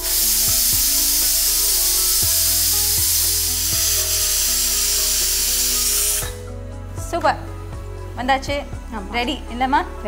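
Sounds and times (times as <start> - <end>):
pressure cooker whistle hissing: 0.0 - 6.5.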